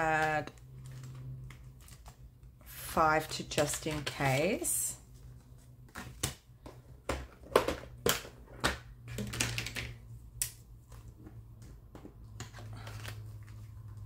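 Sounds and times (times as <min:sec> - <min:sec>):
banknotes and plastic crinkling: 0:00.0 - 0:06.6, 0:12.2 - 0:14.0.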